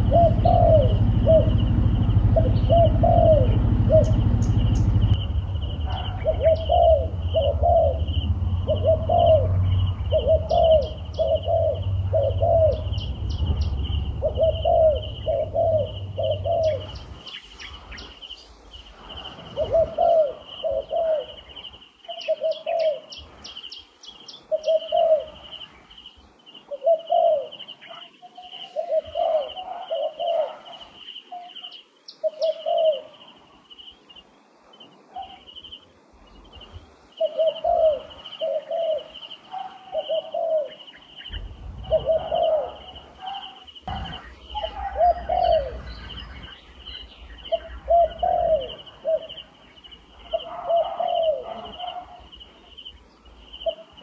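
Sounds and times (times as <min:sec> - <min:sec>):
low rumble: 0:00.0 - 0:17.2, 0:41.3 - 0:43.1, 0:43.8 - 0:48.2
dove cooing: 0:00.0 - 0:23.4, 0:24.4 - 0:25.6, 0:26.6 - 0:33.4, 0:37.1 - 0:54.0.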